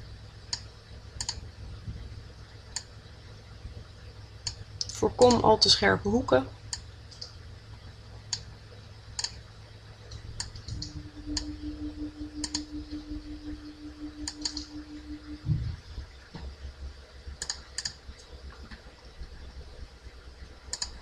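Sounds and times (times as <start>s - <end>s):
steady low hum: 0.0s - 21.0s
computer mouse clicking: 0.5s - 1.4s, 9.2s - 9.4s, 12.4s - 12.7s, 14.2s - 14.7s, 17.4s - 18.3s, 20.7s - 21.0s.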